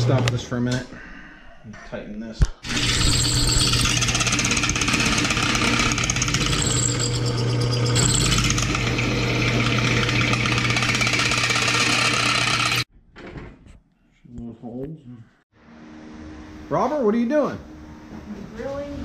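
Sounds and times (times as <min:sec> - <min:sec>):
drill bit chattering through steel: 0:02.6 - 0:12.9
drill press motor hum: 0:02.6 - 0:12.9.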